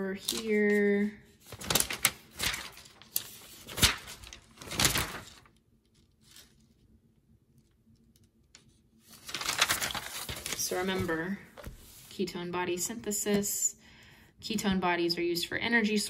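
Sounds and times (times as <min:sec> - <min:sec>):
paper rustling: 0:00.2 - 0:06.8, 0:08.6 - 0:12.2.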